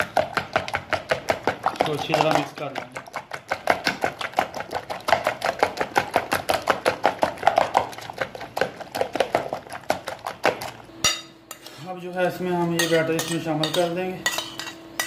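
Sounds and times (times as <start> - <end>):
spoon tapping plastic bowl: 0.3 - 3.0.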